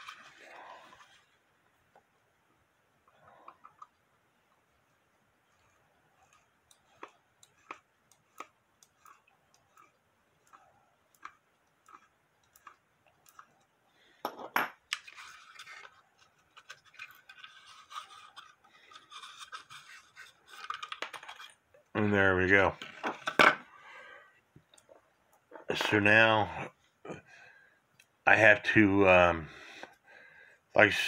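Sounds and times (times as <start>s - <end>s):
scraping and light clinking: 14.2s - 21.7s.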